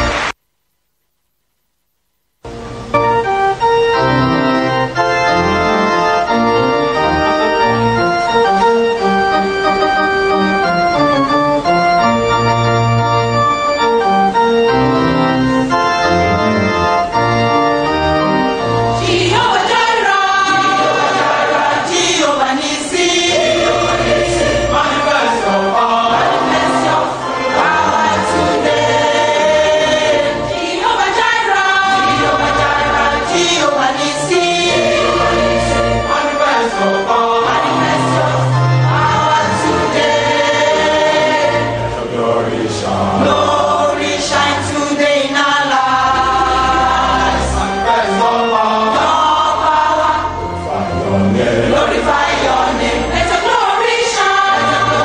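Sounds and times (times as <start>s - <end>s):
organ chords: 0.0s - 0.4s, 2.4s - 55.0s
choir singing: 17.9s - 55.0s.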